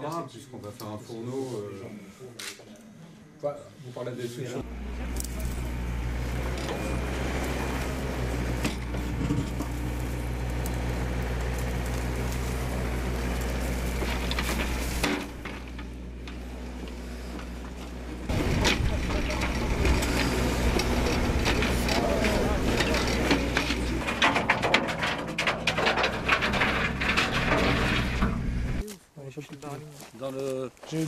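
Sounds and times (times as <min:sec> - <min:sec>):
excavator diesel engine running: 0:04.6 - 0:28.8.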